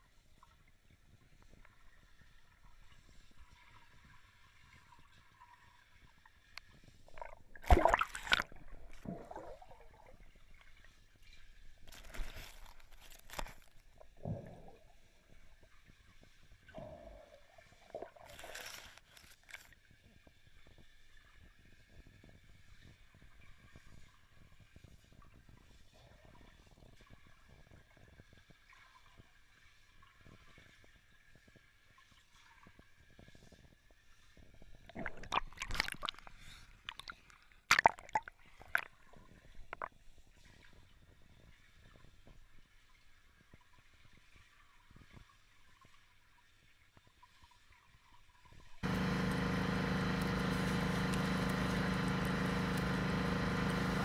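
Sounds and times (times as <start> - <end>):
water sloshing and bubbling: 0.2 - 49.0
splashy bursts: 7.2 - 9.6, 48.8 - 54.0.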